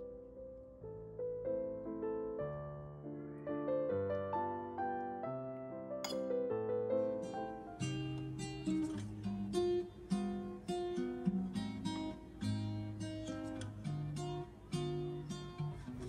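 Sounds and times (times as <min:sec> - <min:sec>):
acoustic guitar plucking: 0:07.7 - 0:16.0.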